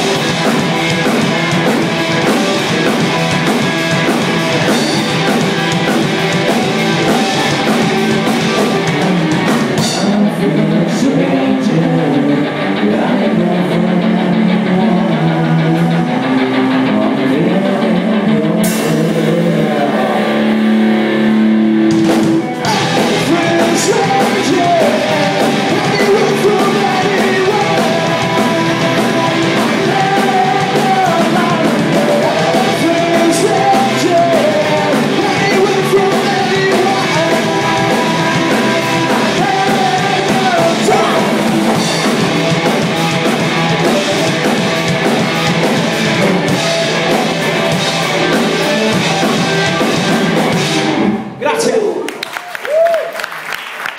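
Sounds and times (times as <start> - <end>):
sung vocals: 0.0 - 21.6, 22.2 - 44.8
rock band playing live: 0.0 - 52.0.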